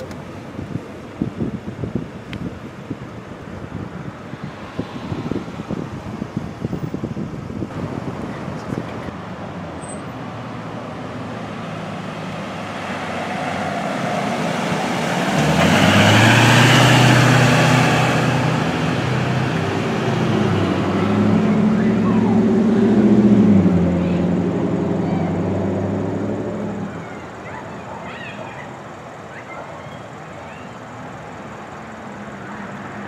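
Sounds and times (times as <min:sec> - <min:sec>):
low wind buffeting: 0:00.0 - 0:31.8
traffic noise: 0:00.0 - 0:33.0
ambulance engine passing: 0:07.8 - 0:33.0.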